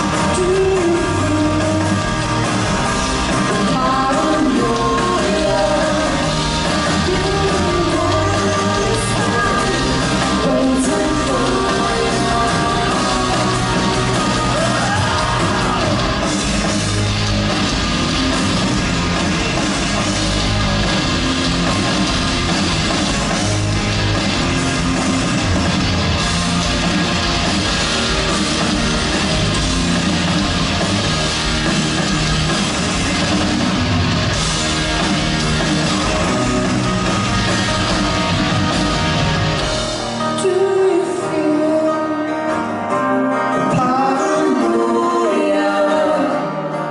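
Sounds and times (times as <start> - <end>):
bass guitar: 0.0 - 46.9
drums: 0.0 - 46.9
electric guitar: 0.0 - 46.9.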